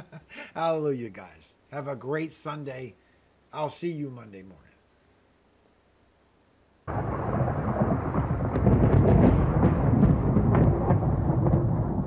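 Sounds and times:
crackling thunder strikes: 6.9 - 12.0
thunder rumbling: 6.9 - 12.0.

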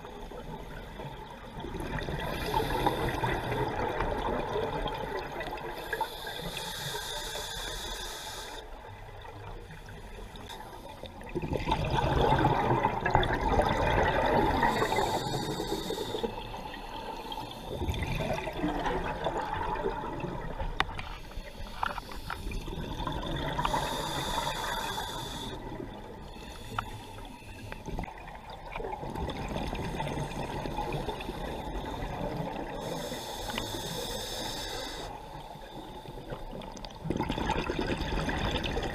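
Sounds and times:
regulator air hiss on inhale: 2.2 - 3.9, 5.6 - 8.8, 14.6 - 17.9, 21.1 - 22.8, 23.6 - 28.1, 30.0 - 36.7
gurgling rush of exhaled bubbles: 11.3 - 15.2, 17.7 - 20.8, 22.5 - 24.0, 28.0 - 32.7, 37.0 - 38.9.

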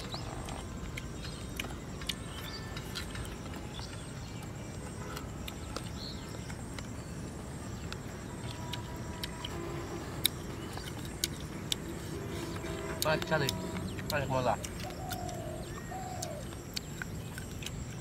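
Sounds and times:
low outdoor rumble: 0.0 - 18.0
people chewing crunchy food: 0.0 - 18.0.

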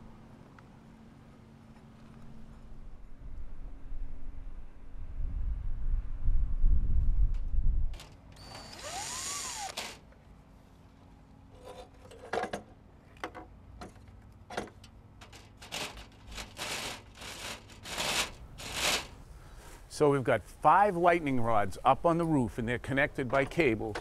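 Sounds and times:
wind gusting on microphone: 2.8 - 8.0
cable clicking and scraping: 15.2 - 19.2.

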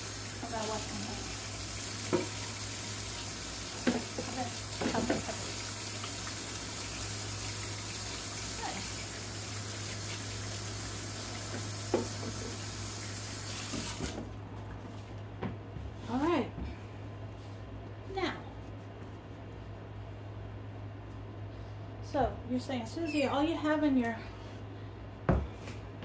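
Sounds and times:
hands washing under water: 0.0 - 14.2
tap running into steel sink: 2.0 - 2.4, 11.4 - 12.6.

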